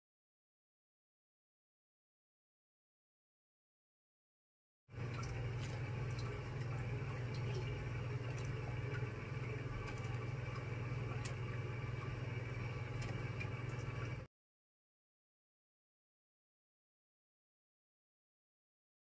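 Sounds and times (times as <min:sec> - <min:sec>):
brine simmering in a pot: 0:04.9 - 0:14.3
low steady hum: 0:04.9 - 0:14.3.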